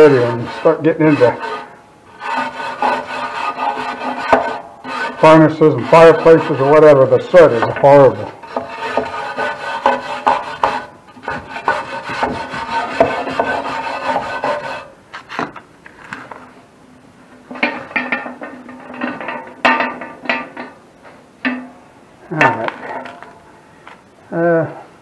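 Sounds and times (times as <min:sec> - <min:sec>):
brush scraping metal: 0:00.0 - 0:16.4, 0:17.5 - 0:20.8.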